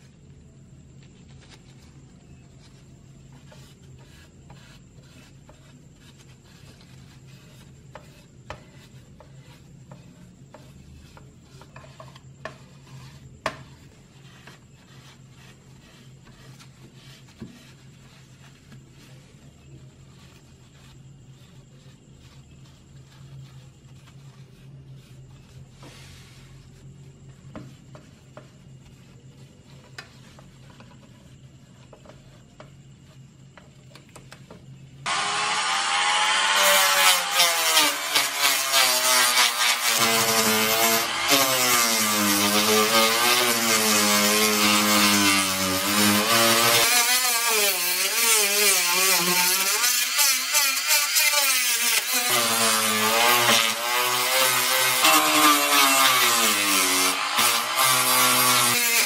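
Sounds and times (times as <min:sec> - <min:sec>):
faint scratches: 0:00.0 - 0:34.8
rotary tool wire brush whine: 0:35.1 - 0:59.0.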